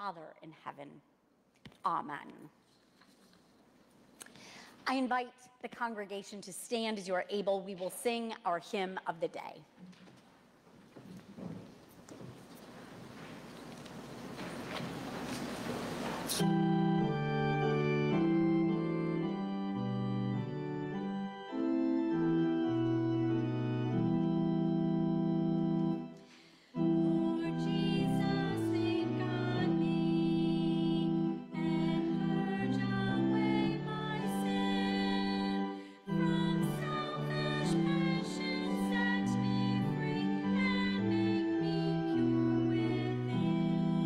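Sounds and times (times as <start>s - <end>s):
church organ playing held chords: 16.0s - 44.0s
congregation singing a hymn: 26.8s - 44.0s.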